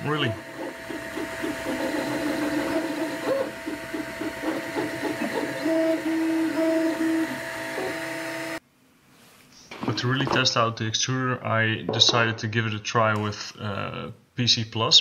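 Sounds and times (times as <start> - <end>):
printer stepper motors whirring: 0.0 - 8.6.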